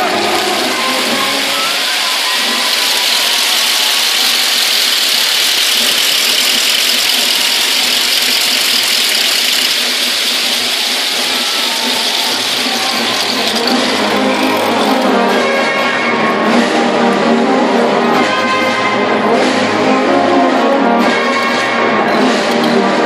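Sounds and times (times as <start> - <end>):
large audience applause: 0.0 - 16.8.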